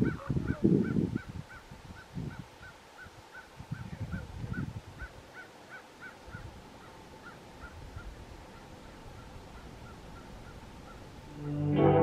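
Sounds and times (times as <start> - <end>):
raven croaking: 0.0 - 11.7
faint outdoor background: 0.0 - 12.0.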